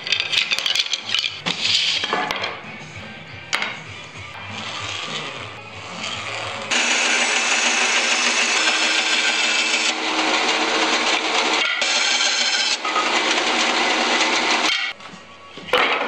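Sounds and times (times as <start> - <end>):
bandsaw cutting wood: 4.5 - 14.9.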